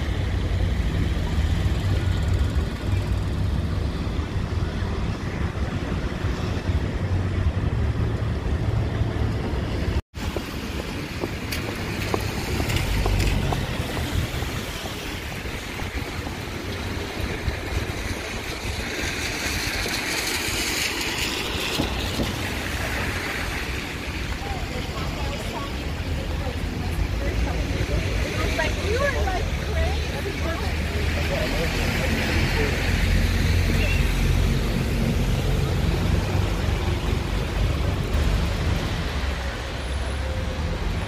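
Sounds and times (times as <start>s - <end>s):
wind buffeting microphone: 0.0s - 30.8s
heavy rain: 0.0s - 41.0s
traffic on wet streets: 0.0s - 41.0s.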